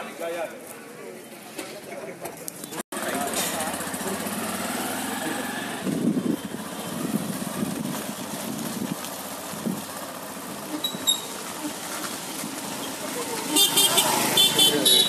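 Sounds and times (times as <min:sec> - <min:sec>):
vehicle engine running: 0:03.0 - 0:15.0.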